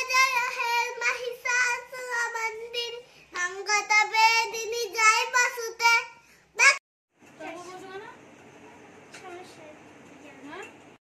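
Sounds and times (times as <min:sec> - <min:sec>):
young girl singing: 0:00.0 - 0:06.7.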